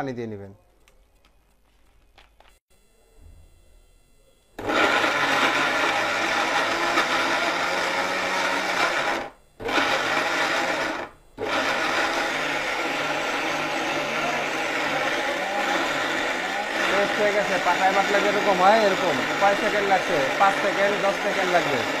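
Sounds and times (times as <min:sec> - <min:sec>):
mixer grinder running: 0:04.6 - 0:22.0.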